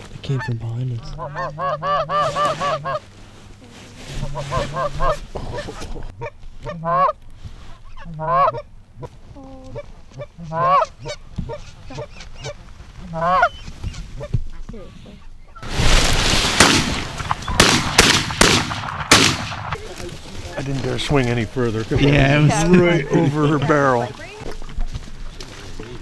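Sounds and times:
goose honking: 0.3 - 3.1, 4.2 - 7.2, 7.8 - 9.1, 9.7 - 14.4
shotgun blasts: 15.6 - 19.8.

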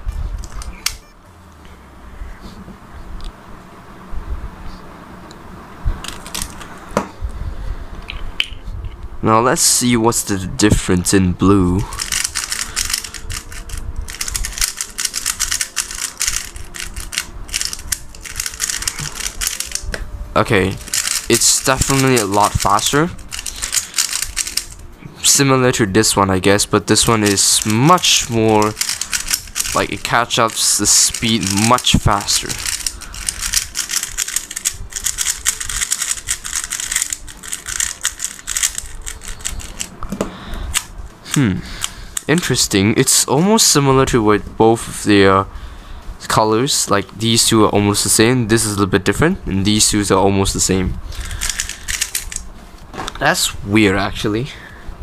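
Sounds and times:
puzzle cube plastic clicks: 12.0 - 19.8, 20.8 - 24.8, 27.0 - 39.9, 51.2 - 52.4.

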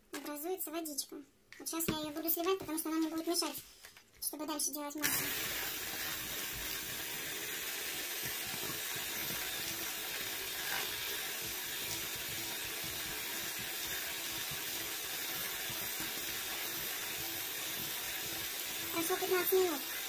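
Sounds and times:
electric hand mixer running: 5.0 - 20.0.

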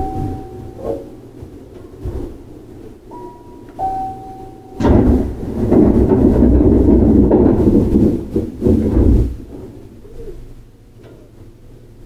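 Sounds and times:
two-note chime: 0.0 - 1.0, 3.1 - 4.8
loud rumbling noise: 4.6 - 12.0.

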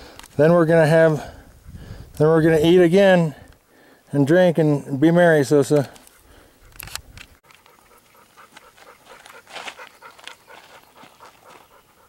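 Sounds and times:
puppy panting: 6.0 - 12.0.

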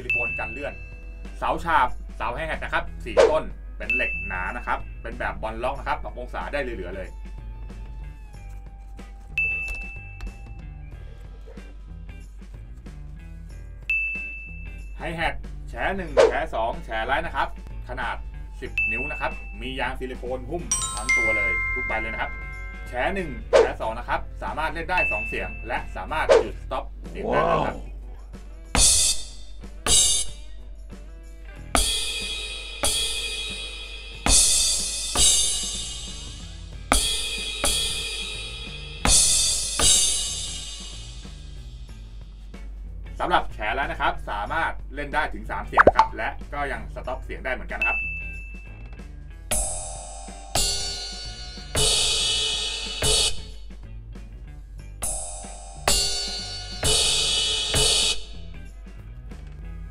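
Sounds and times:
electronic ride cymbal ringing: 20.7 - 23.1, 55.0 - 56.8.

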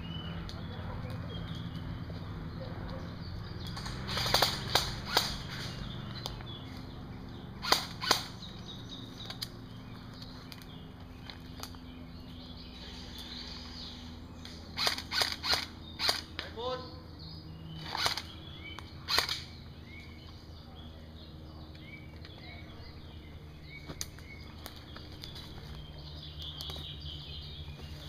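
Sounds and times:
airsoft gun shots: 3.8 - 5.8, 7.6 - 8.4, 14.8 - 16.3, 19.1 - 19.5.

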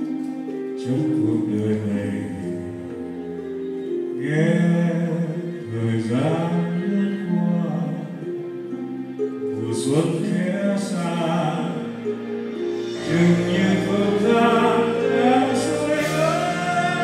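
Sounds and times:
backing music: 0.0 - 17.0
man singing a slow ballad: 0.8 - 3.0, 4.2 - 8.2, 9.6 - 11.9, 12.8 - 17.0.

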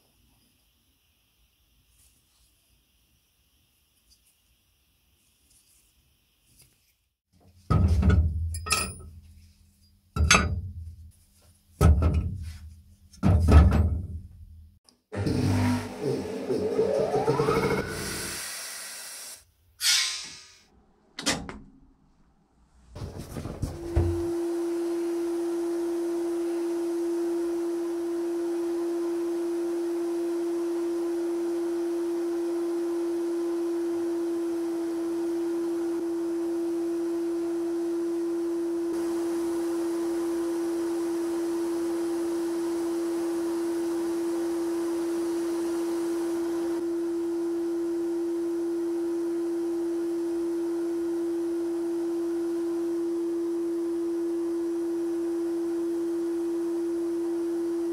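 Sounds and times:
loud droning tone: 15.1 - 18.5, 33.2 - 57.9
sandblasting air and grit hiss: 15.4 - 20.6.

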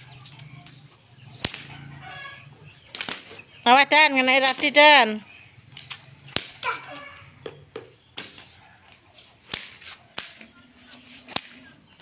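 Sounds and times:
whip cracking: 1.4 - 1.8, 2.9 - 3.4, 5.7 - 6.9, 8.2 - 8.5, 9.4 - 10.5, 11.3 - 11.7.

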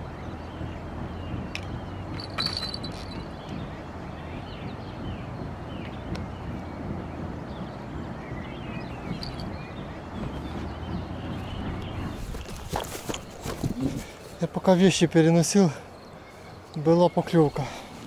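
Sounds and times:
low background rumble: 0.0 - 17.0
small birds chirping: 0.0 - 18.0.

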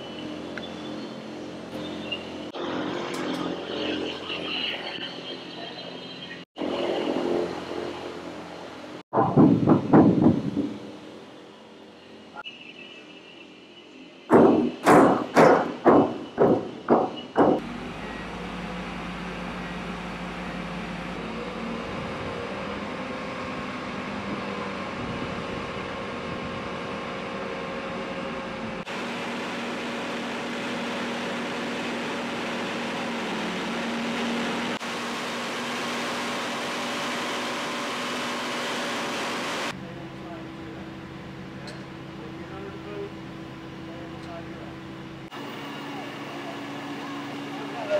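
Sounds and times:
crane engine running: 0.0 - 47.9
sharp metal knocks: 9.1 - 10.8, 14.3 - 17.6.

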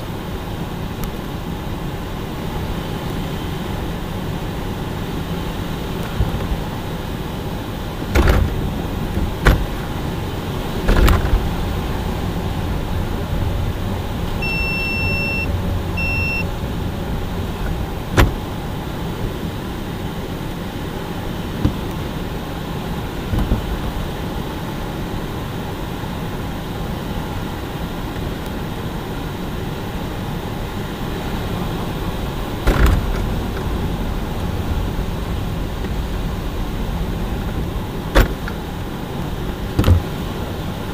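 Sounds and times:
airflow noise: 0.0 - 40.9
propeller aircraft engine running: 0.0 - 40.9
sharp thumps: 8.1 - 9.9
electronic beeps: 14.4 - 16.5.

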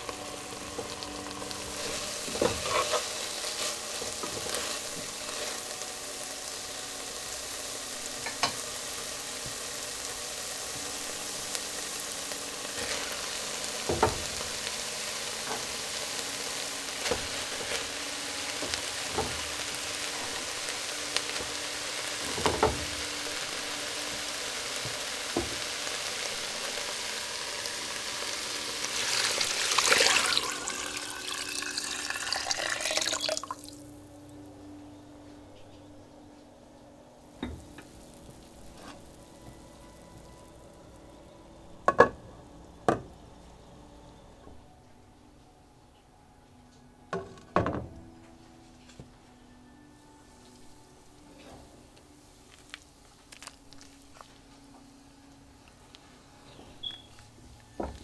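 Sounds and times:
vegetables sizzling in oil: 0.0 - 34.4, 37.3 - 43.8
tongs scraping a pan: 1.8 - 3.7
liquid poured into pan: 29.0 - 33.8.

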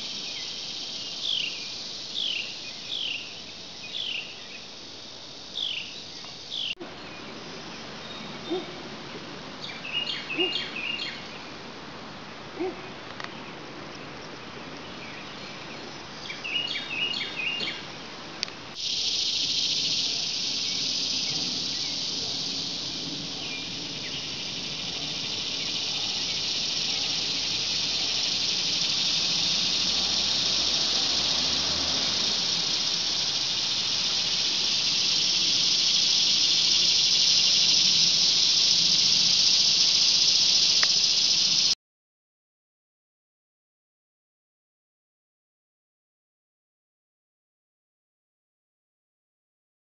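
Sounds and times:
birds chirping: 0.0 - 4.8, 5.5 - 8.9, 9.6 - 11.6, 12.2 - 41.8
high-pitched cicada drone: 0.0 - 8.8, 9.6 - 11.5, 16.2 - 17.9, 18.7 - 41.8
faint insect hum: 0.0 - 41.8.

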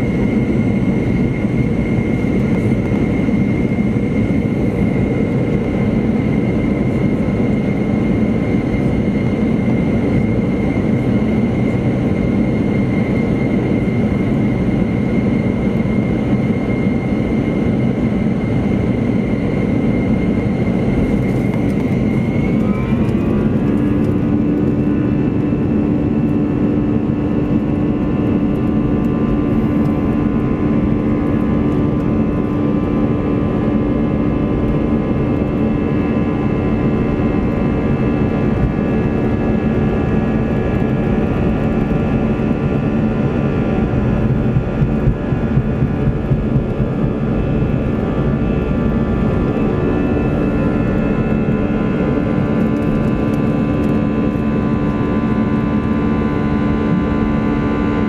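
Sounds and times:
jet engine whine: 0.0 - 58.0
steady hum: 0.0 - 58.0
jet cabin rush: 43.0 - 49.9.

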